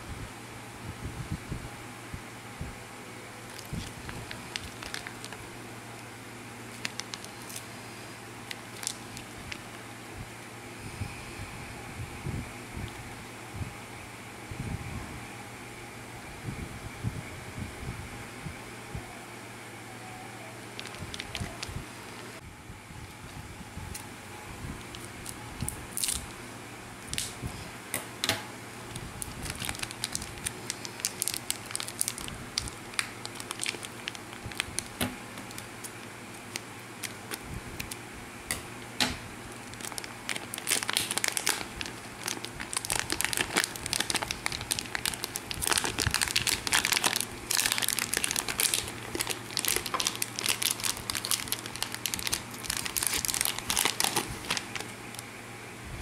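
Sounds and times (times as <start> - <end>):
plastic packaging crinkling: 3.4 - 5.4, 6.7 - 7.8, 8.5 - 9.8, 20.7 - 21.7, 24.8 - 26.3, 28.9 - 38.0, 39.5 - 55.3.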